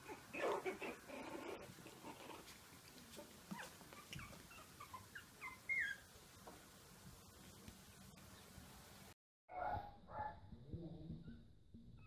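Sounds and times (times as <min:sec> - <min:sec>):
puppies scuffling: 0:00.1 - 0:08.1
high puppy squeaks: 0:03.5 - 0:06.1.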